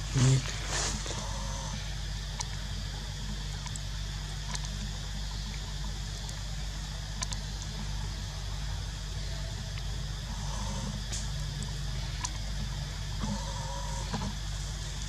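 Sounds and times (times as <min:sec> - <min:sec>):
background hiss: 0:00.0 - 0:04.6
low hum: 0:00.0 - 0:15.0.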